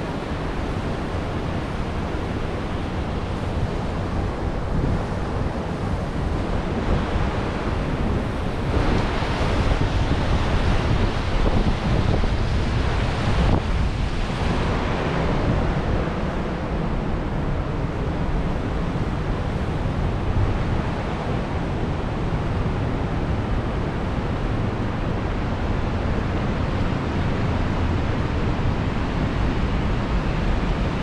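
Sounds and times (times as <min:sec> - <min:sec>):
water rushing down dam face: 0:00.0 - 0:31.0
wind buffeting microphone: 0:00.0 - 0:31.0.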